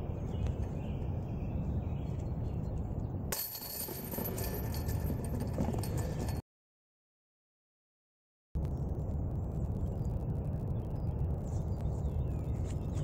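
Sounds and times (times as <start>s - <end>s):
low wind rumble: 0.0s - 6.4s, 8.6s - 13.0s
metal chains jingling: 3.4s - 6.4s.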